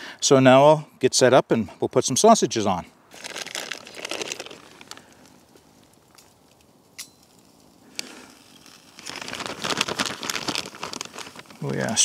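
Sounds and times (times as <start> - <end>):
plastic bag crinkling: 3.1 - 6.4, 7.9 - 12.0.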